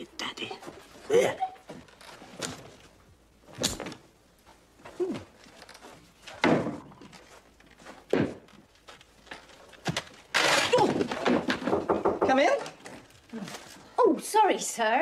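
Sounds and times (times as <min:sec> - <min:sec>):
knocking: 0:10.3 - 0:12.7.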